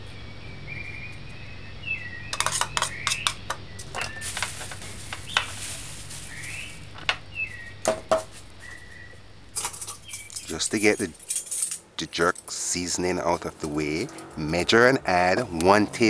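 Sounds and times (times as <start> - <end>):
knocks of objects set down: 7.8 - 8.4.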